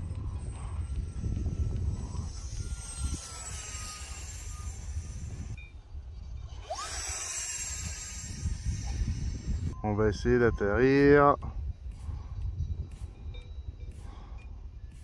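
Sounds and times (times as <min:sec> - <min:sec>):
electric ducted fan whine: 0:00.0 - 0:05.6, 0:06.6 - 0:09.8
wind rumbling on microphone: 0:00.0 - 0:15.0.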